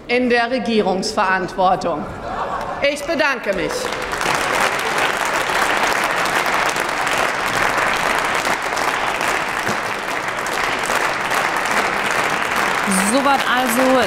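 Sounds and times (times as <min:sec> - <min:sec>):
loud applause: 0:02.2 - 0:14.0.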